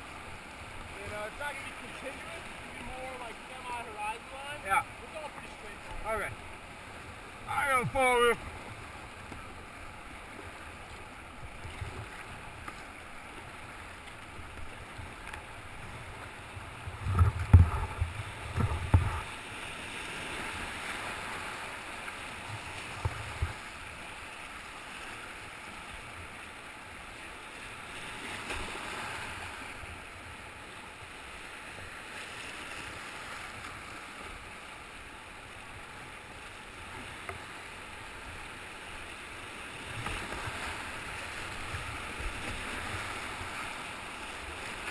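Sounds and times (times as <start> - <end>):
whitewater rapids rushing: 0.0 - 16.8.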